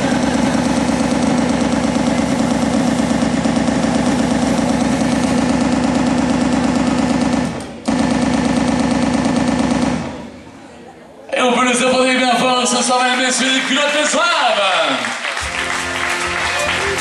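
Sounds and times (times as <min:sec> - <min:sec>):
machine-gun fire: 0:00.0 - 0:10.4.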